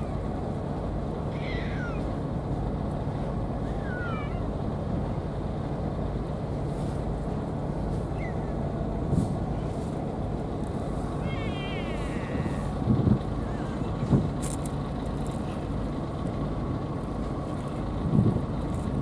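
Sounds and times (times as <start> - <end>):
low rumble: 0.0 - 19.0
cats meowing faintly: 1.3 - 2.2, 3.6 - 4.5, 11.2 - 12.7.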